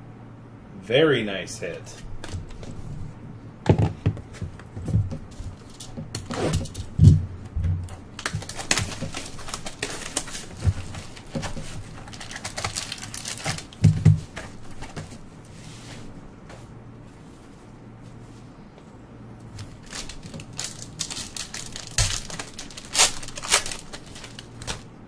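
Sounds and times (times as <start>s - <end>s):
rustling wrappers: 5.0s - 7.1s, 7.8s - 15.2s, 19.5s - 24.9s.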